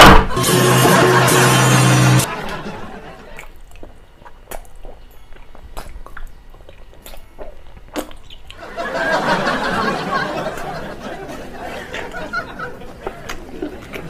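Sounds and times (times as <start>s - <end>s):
wet sticky chewing and smacking: 3.2s - 8.6s, 12.7s - 14.0s.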